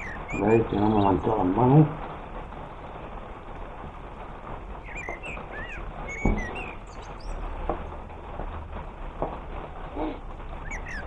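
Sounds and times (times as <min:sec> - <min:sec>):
small birds chirping: 0:00.0 - 0:02.0, 0:04.7 - 0:07.6, 0:10.0 - 0:11.0
rain hiss: 0:00.0 - 0:11.0
knock: 0:06.2 - 0:06.6.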